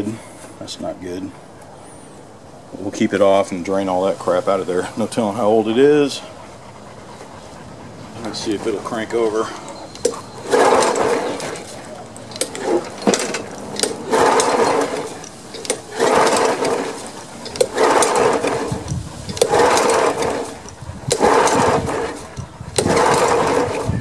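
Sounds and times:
pull-cord starter whirring: 9.6s - 24.0s.

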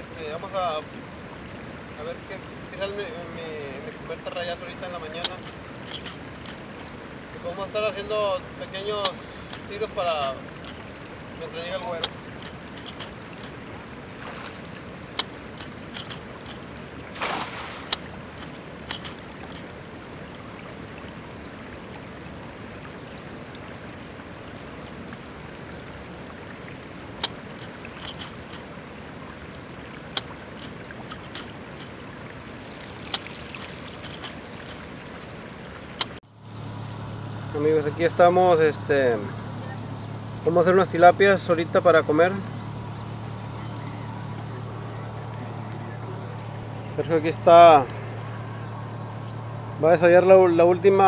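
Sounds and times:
water hiss: 0.0s - 51.0s
wind: 0.0s - 51.0s
net splashing into water: 4.4s - 20.2s, 27.1s - 35.4s
small clicks: 5.1s - 6.9s, 11.9s - 13.6s, 15.1s - 16.7s, 17.9s - 19.7s, 27.2s - 28.7s, 34.0s - 34.8s.

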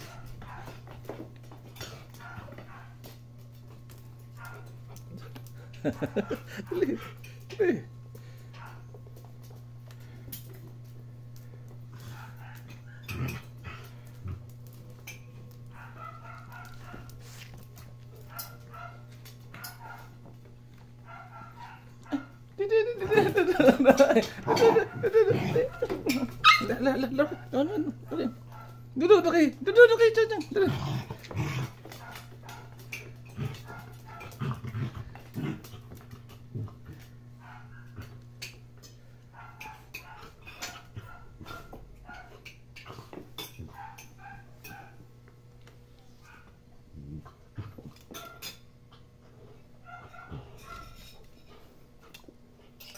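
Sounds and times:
claws clicking on tiled floor: 0.0s - 7.5s, 8.1s - 22.4s, 30.7s - 46.6s, 47.6s - 49.0s
dogs play-growling: 0.0s - 29.0s, 30.4s - 52.9s
steady low hum: 0.0s - 52.9s
puppies yipping and whining: 23.0s - 27.6s.

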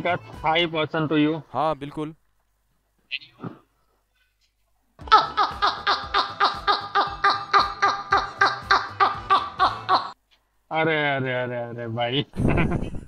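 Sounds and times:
men laughing hard: 5.0s - 10.2s, 12.4s - 13.0s.

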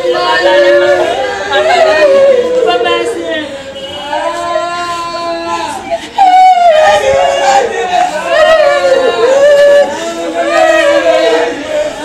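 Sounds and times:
women singing a mourning lament: 0.0s - 3.5s.

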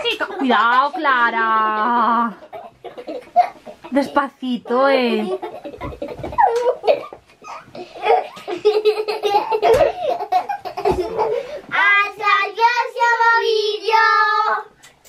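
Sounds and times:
children's voices and laughter: 0.0s - 14.8s.

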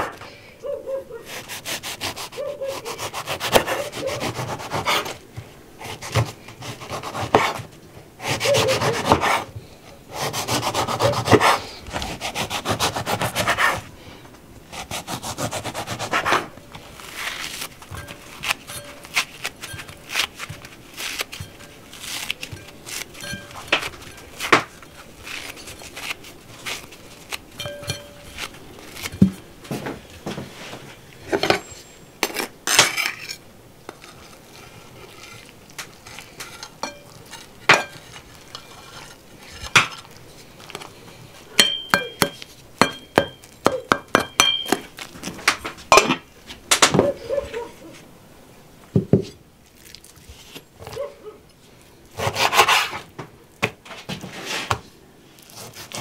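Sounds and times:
ringing metal taps: 41.6s - 44.8s
short scrape: 54.2s - 54.7s.

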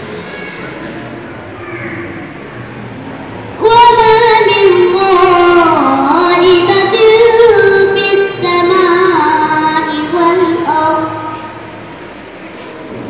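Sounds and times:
girl chanting through loudspeaker: 3.6s - 11.7s.

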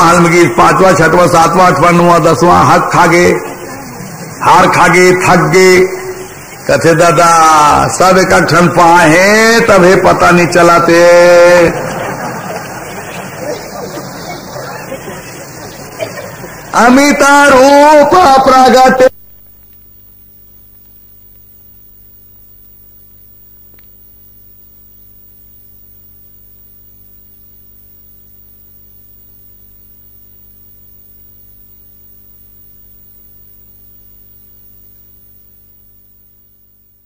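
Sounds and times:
electrical mains hum: 0.0s - 37.0s
faint hiss: 0.0s - 37.0s
faint click: 22.8s - 24.0s.

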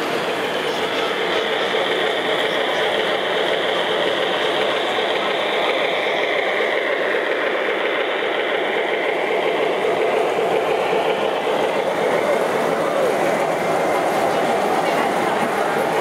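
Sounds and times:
model train rolling rumble: 0.0s - 16.0s.

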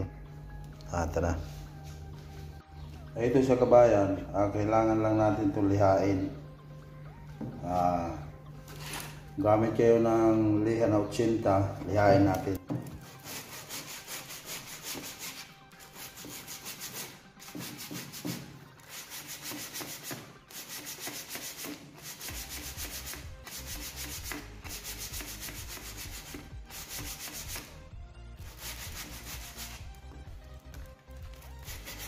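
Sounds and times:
sandpaper rubbing on wood: 13.0s - 27.8s, 28.4s - 29.9s, 31.4s - 32.0s.

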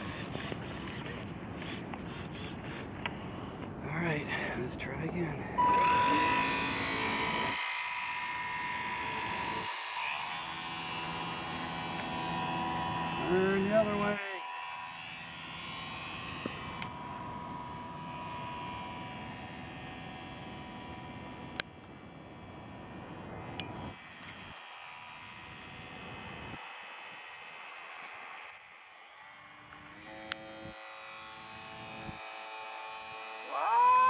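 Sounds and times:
model plane motor buzzing: 0.0s - 3.2s, 5.6s - 34.0s
loud rising tone: 5.6s - 19.5s.

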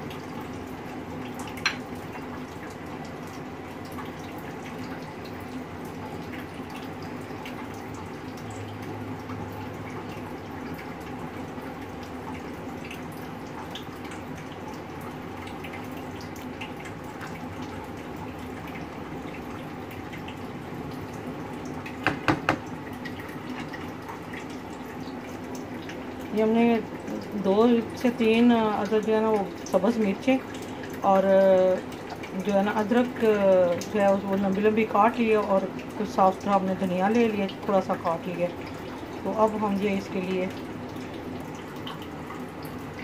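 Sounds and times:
thick dal bubbling: 0.0s - 36.8s
sharp knocks: 22.0s - 22.7s.

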